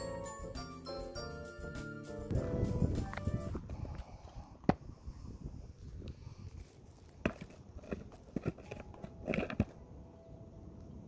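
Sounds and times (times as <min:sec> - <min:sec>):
low rumble: 0:02.3 - 0:04.4
footsteps on stony ground: 0:06.6 - 0:09.8.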